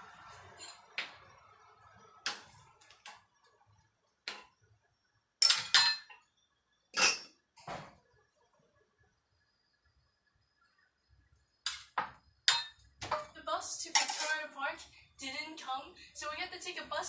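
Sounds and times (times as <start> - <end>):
metal cookware clinking: 5.4 - 6.3, 6.9 - 7.4, 11.6 - 13.3, 13.9 - 14.4.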